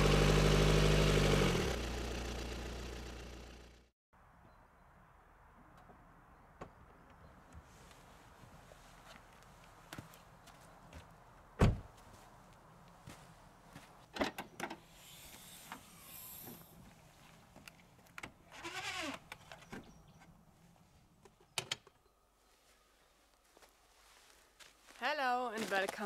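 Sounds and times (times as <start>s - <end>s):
car door slamming: 11.6s - 11.9s
tailgate hiss opening: 14.9s - 16.7s.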